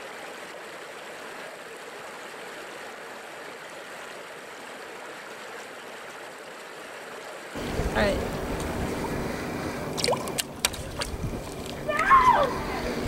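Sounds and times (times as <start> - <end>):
water running over rocks: 0.0 - 13.0.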